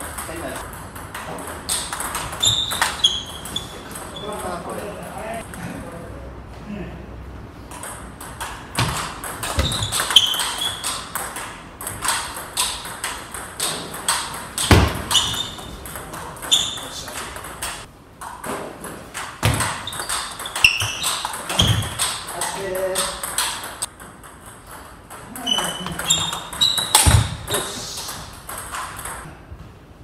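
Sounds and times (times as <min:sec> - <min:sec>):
shoe squeaks on wooden floor: 0:02.3 - 0:04.4, 0:09.6 - 0:11.0, 0:15.0 - 0:15.8, 0:16.4 - 0:17.1, 0:19.7 - 0:21.9, 0:25.4 - 0:27.5.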